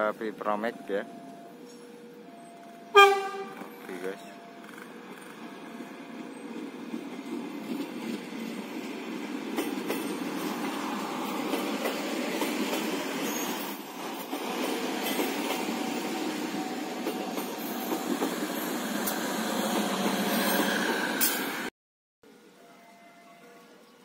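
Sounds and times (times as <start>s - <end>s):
train wheels rumbling on rails: 3.4s - 21.7s
wheels clacking over rail joints: 3.6s - 16.0s.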